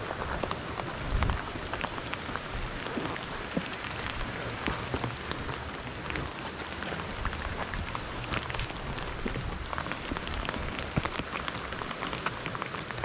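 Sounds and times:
rain falling: 0.0s - 13.0s.

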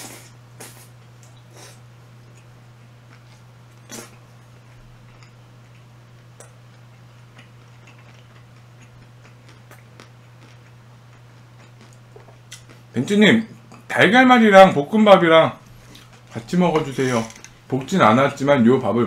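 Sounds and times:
mouth clicks while chewing: 7.4s - 12.8s.

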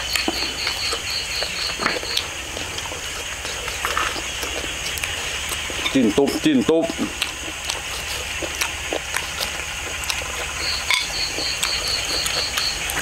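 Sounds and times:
outdoor background hiss: 0.0s - 13.0s
rapid high chirp: 10.6s - 12.9s.

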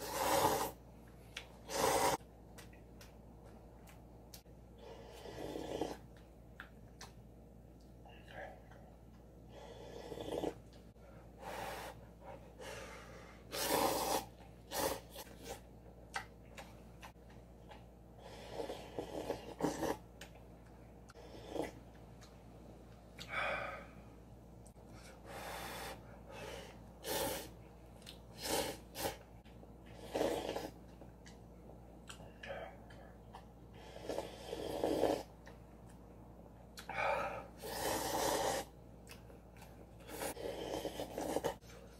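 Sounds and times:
person slurping noodles: 0.0s - 0.8s, 13.5s - 15.6s, 30.0s - 30.8s, 37.6s - 38.7s, 40.1s - 41.6s
person sniffing: 12.6s - 15.6s, 25.3s - 27.6s.

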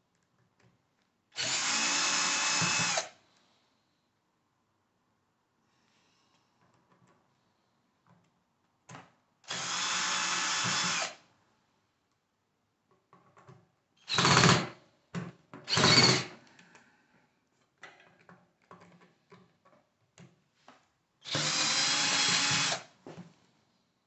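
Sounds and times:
cordless drill driving screws: 1.4s - 3.1s, 9.5s - 11.2s, 14.1s - 14.7s, 15.7s - 16.3s, 21.2s - 22.9s.

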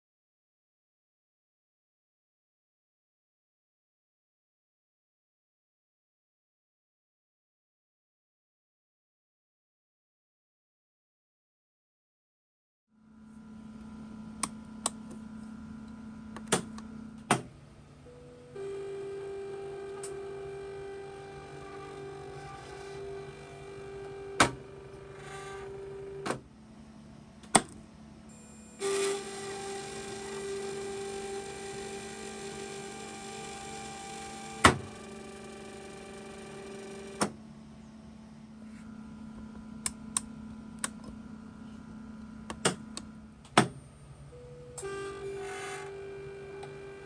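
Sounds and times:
small electric motor running: 28.8s - 37.2s.

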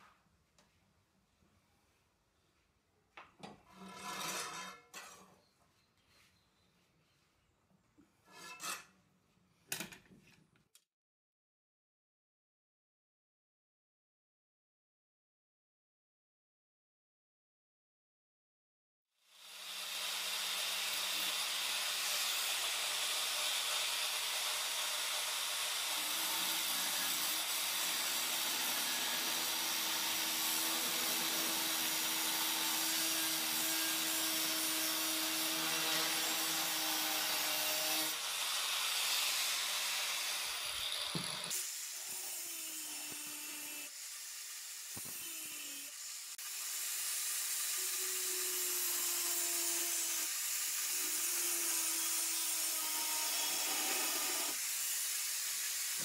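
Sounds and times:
angle grinder grinding steel: 19.4s - 56.0s.

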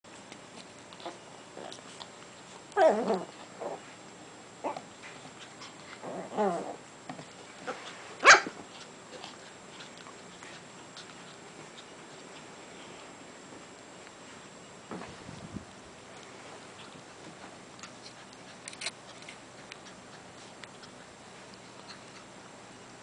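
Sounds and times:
dogs growling: 1.0s - 2.1s, 2.7s - 3.8s, 5.6s - 6.8s
dogs grumbling: 2.7s - 3.8s, 5.6s - 6.8s
dog barking: 8.2s - 8.5s.

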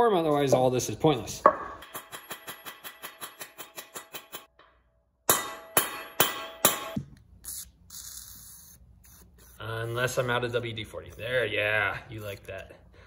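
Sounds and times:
hammer striking metal: 1.4s - 7.1s
metal ringing: 1.5s - 7.0s.

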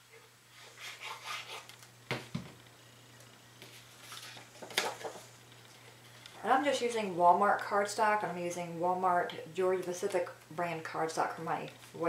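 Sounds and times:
low steady hum: 0.0s - 12.0s
paper rustling: 3.7s - 5.3s.

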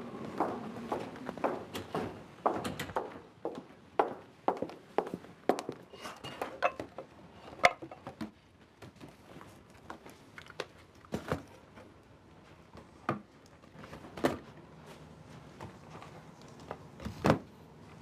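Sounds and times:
faint room noise: 0.0s - 18.0s.

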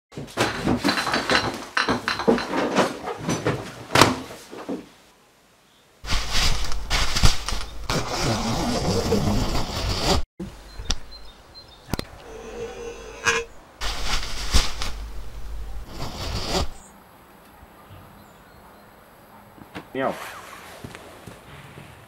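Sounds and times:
coverall rustling and crinkling: 6.0s - 8.4s, 13.8s - 16.7s.

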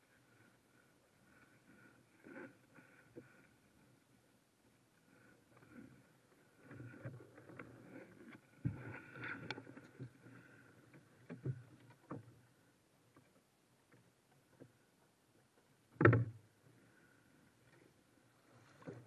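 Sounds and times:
paddle knocking and rustling: 5.1s - 16.9s, 17.7s - 19.0s
paddle thumping against hull: 15.9s - 16.4s.

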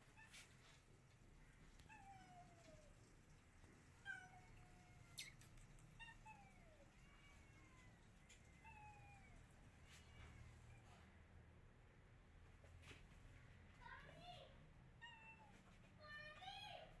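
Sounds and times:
cat meowing faintly: 4.0s - 11.1s.

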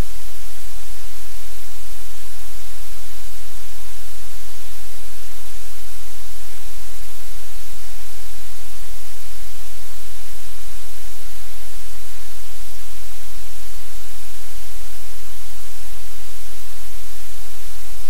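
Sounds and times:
static hiss: 0.0s - 18.0s.

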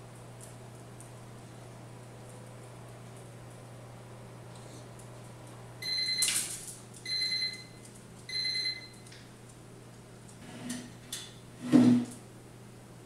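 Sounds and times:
appliance beeps: 5.8s - 6.4s, 7.0s - 9.1s.

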